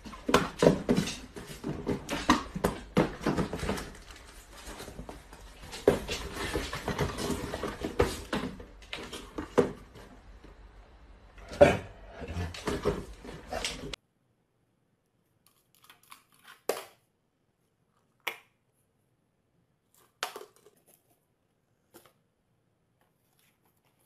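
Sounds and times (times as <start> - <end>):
cardboard cartons knocking: 0.0 - 10.2.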